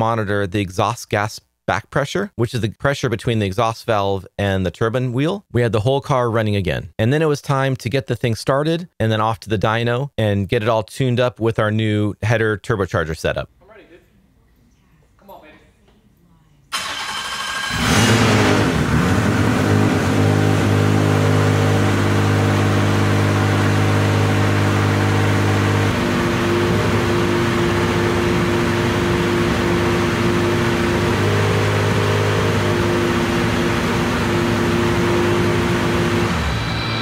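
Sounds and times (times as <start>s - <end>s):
car engine starting and idling: 16.7s - 37.0s.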